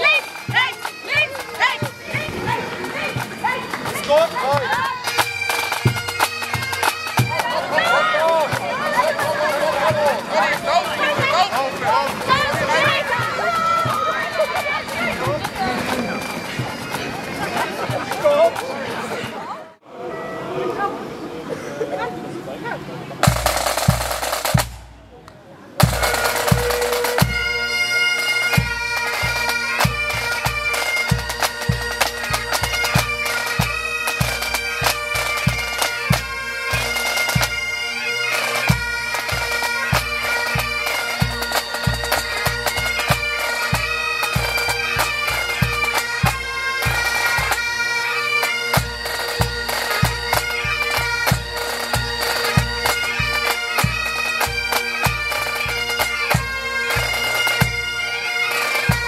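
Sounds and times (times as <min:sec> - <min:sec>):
drums beating: 0:00.0 - 0:18.7, 0:23.2 - 0:25.1, 0:25.8 - 0:37.6
bagpipes playing: 0:00.0 - 0:20.8, 0:25.8 - 0:59.0.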